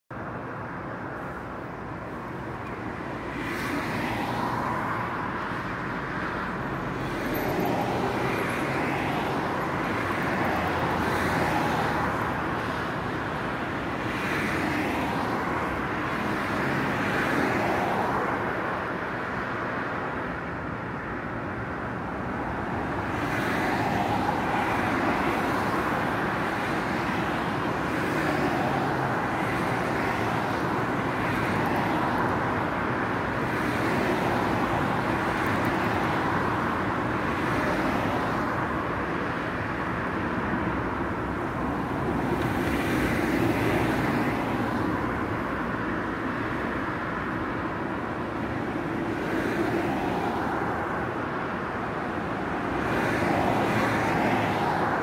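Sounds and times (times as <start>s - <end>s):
steady traffic hum: 0.1s - 55.0s
cars passing: 0.2s - 55.0s.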